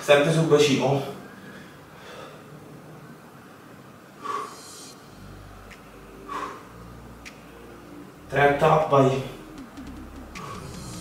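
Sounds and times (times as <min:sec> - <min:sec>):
man breathing out hard: 0:06.1 - 0:06.8, 0:10.4 - 0:11.0.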